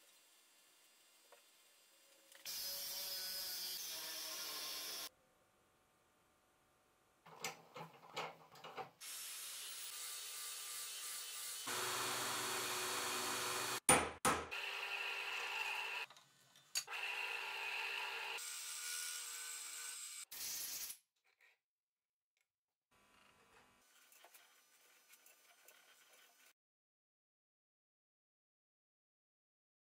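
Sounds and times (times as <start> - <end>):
belt grinder grinding steel: 10.0 - 13.9.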